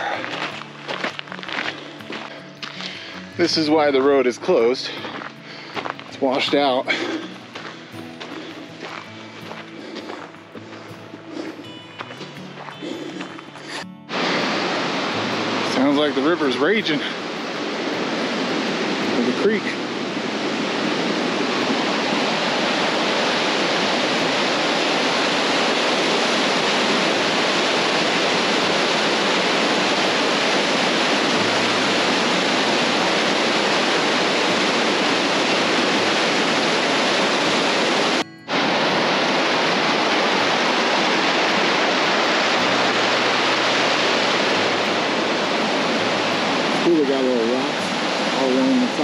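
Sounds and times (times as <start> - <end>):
creek water rushing: 0.0 - 49.0.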